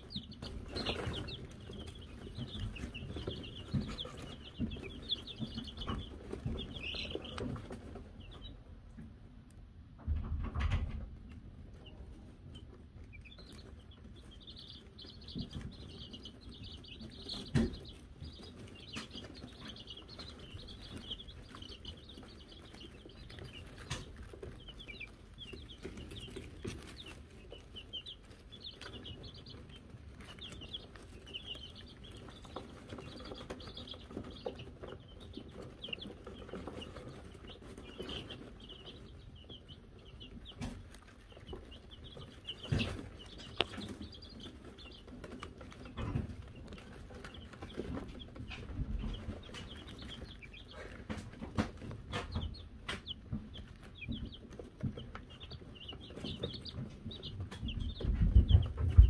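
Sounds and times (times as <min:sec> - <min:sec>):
chicks peeping: 0:00.0 - 0:59.0.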